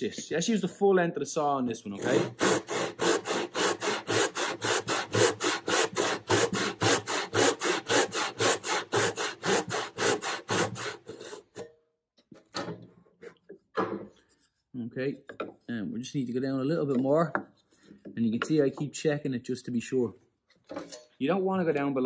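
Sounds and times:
saw cutting wood: 0:01.9 - 0:11.6.

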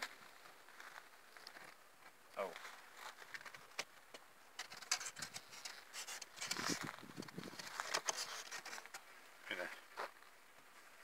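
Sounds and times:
wooden hive parts clicking and knocking: 0:03.2 - 0:09.1.

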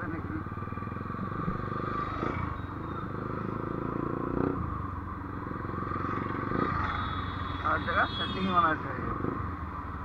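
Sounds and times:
motorcycle engine running: 0:00.0 - 0:07.6.

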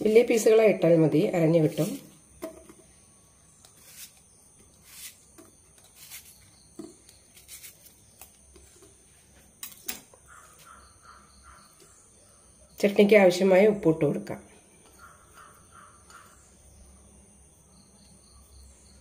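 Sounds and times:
knife cutting onion: 0:03.6 - 0:08.4.

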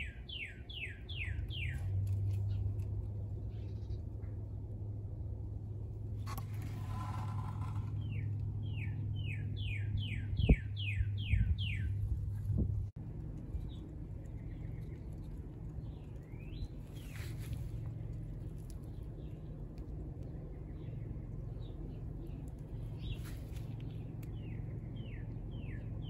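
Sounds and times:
bird whistling song: 0:00.0 - 0:01.8, 0:08.0 - 0:12.0
low steady hum: 0:00.0 - 0:26.0.

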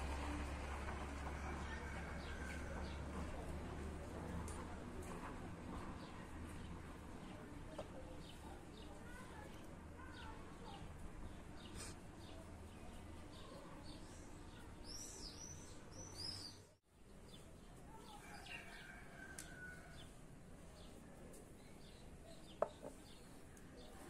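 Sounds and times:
small birds chirping: 0:05.9 - 0:24.0.

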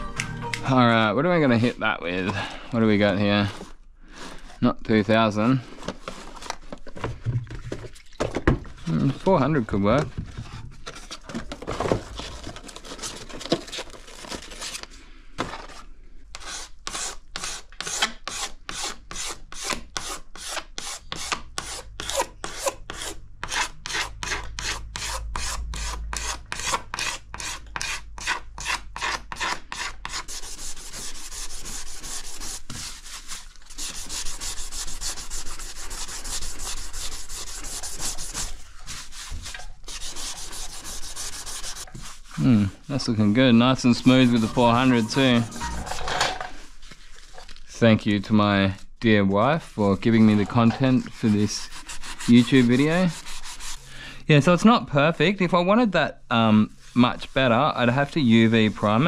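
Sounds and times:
sandpaper sanding: 0:16.4 - 0:42.3, 0:43.8 - 0:45.8, 0:50.1 - 0:53.8.

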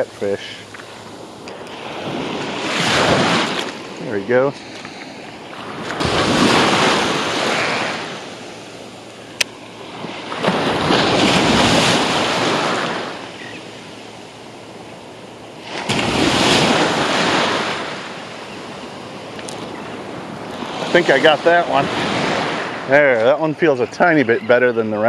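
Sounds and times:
small surf waves breaking: 0:00.0 - 0:24.0.

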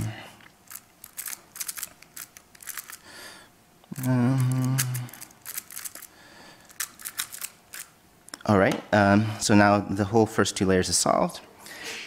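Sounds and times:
man humming: 0:00.0 - 0:00.3, 0:03.9 - 0:05.3
puzzle cube plastic clicks: 0:00.7 - 0:03.0, 0:03.9 - 0:07.9.

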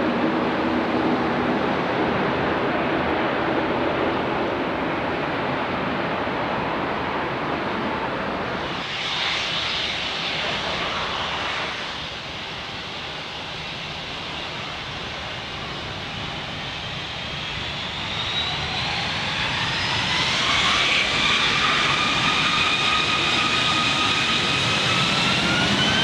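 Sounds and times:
jet engines hissing and whining: 0:00.0 - 0:26.0
turboprop engine rushing: 0:00.0 - 0:26.0.

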